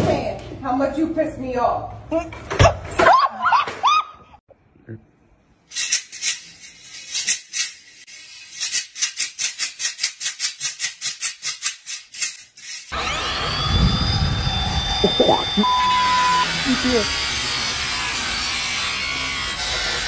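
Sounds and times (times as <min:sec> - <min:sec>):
rhythmic shaker-like rattle: 0:05.7 - 0:12.9
angle grinder whine: 0:12.9 - 0:20.0.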